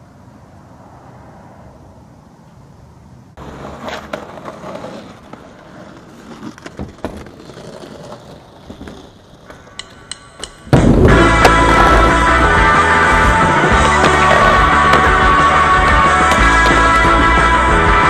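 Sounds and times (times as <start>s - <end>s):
skateboard wheels rolling: 3.4s - 18.0s
skateboard knocking against wood: 8.7s - 17.3s.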